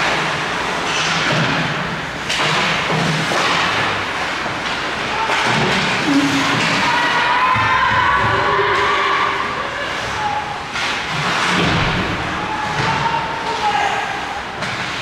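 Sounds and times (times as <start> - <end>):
puck thudding against boards: 0.9 - 6.9.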